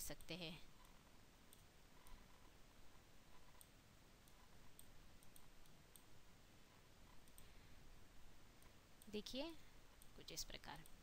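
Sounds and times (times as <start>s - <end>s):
computer mouse clicks: 0.1s - 2.4s, 3.3s - 6.1s, 7.1s - 7.5s.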